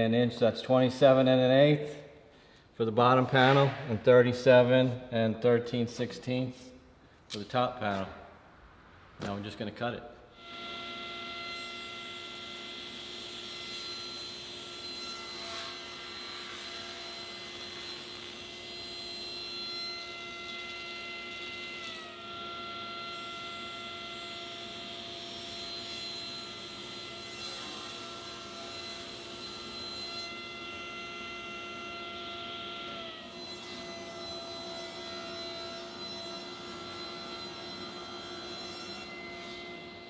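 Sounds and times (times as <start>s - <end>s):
table saw whining: 10.4s - 40.0s.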